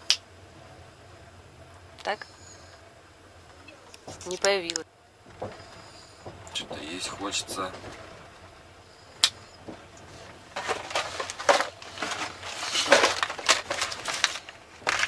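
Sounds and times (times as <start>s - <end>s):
cardboard boxes rustling and knocking: 5.3s - 8.4s, 9.5s - 15.0s.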